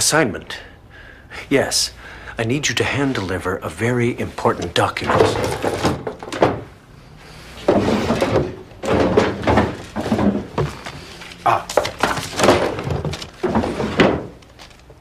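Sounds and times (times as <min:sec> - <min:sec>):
papers shuffling: 0:04.3 - 0:06.6, 0:07.4 - 0:15.0
wooden drawer thunks and knocks: 0:04.6 - 0:06.7, 0:07.6 - 0:10.9, 0:11.7 - 0:14.4.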